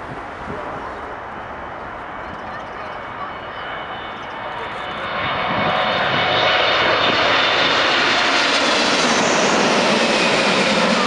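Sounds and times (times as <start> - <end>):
jet airliner passing overhead: 0.0 - 11.0.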